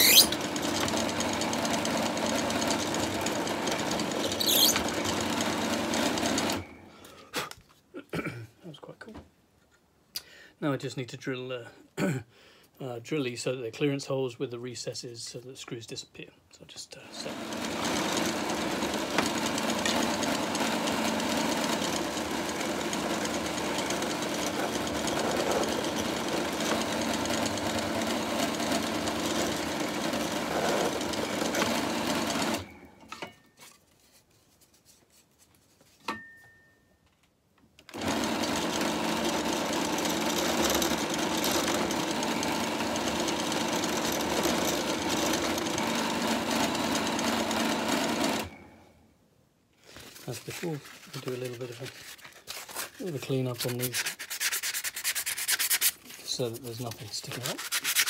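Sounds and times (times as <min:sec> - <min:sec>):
pillar drill motor running: 0:00.0 - 0:06.6, 0:17.2 - 0:32.7, 0:37.9 - 0:48.6.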